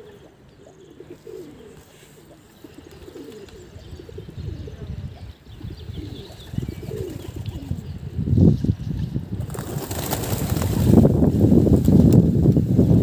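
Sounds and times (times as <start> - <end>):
pigeons cooing: 0.0 - 8.2
wings flapping: 9.0 - 12.7.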